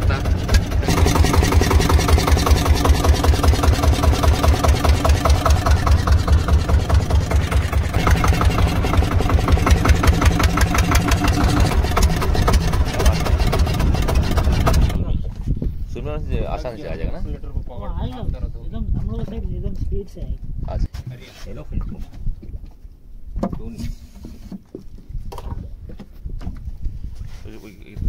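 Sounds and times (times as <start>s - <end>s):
boat engine thumping: 0.0s - 15.2s.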